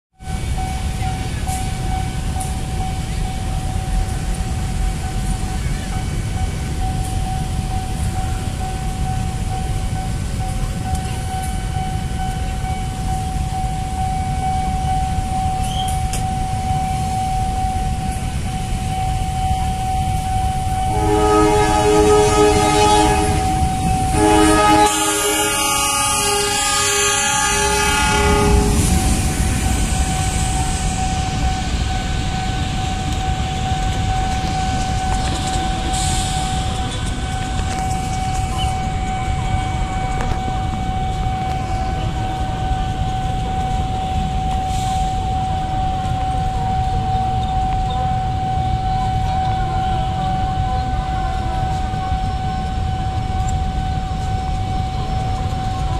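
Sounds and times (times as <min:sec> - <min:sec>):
level crossing warning tone: 0:00.2 - 0:55.9
road traffic rumble: 0:00.2 - 0:55.9
train horn blasts: 0:20.7 - 0:29.9.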